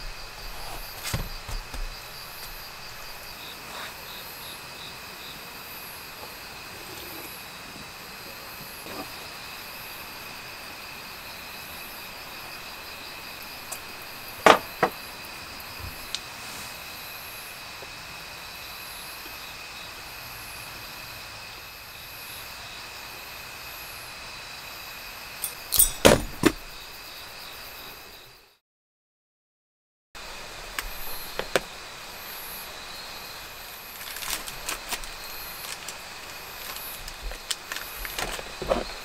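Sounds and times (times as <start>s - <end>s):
insects chirring: 0.0s - 28.6s, 30.2s - 39.0s
sharp knocks: 25.4s - 26.6s.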